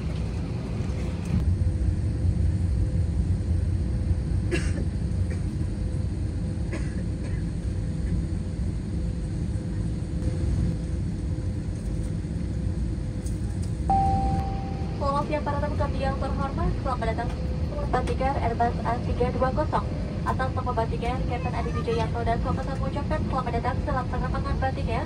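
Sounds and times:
aircraft cabin rumble: 0.0 - 25.0
mid-pitched whine: 10.1 - 21.4.

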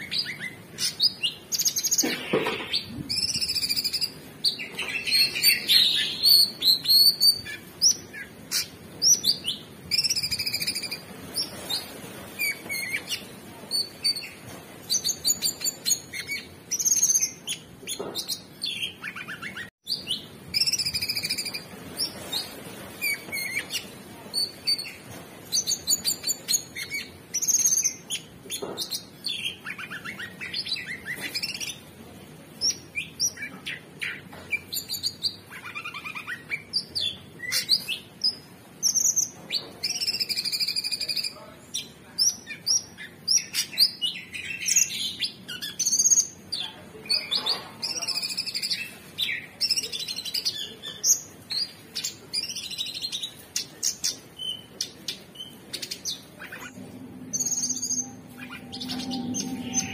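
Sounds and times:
bird singing chirps and trills: 51.6 - 59.9.

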